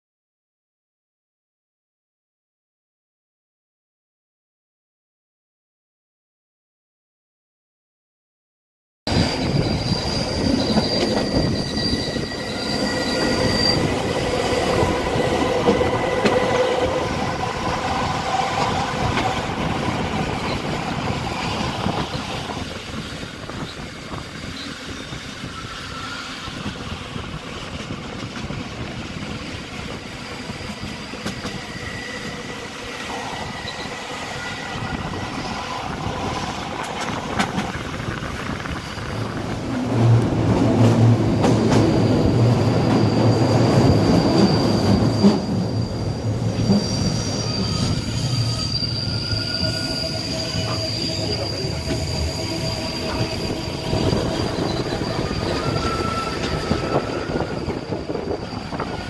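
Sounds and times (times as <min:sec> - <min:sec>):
high wheel squeal: 0:09.1 - 0:27.7, 0:29.4 - 0:39.3, 0:41.8 - 0:59.0
train wheels rumbling on track: 0:09.1 - 0:59.0.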